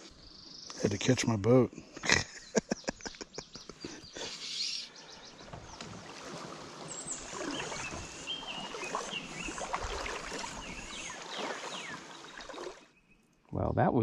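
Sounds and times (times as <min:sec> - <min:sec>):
whistled bird calls: 0:02.6 - 0:05.8, 0:06.8 - 0:13.2
river water over gravel: 0:05.4 - 0:13.1.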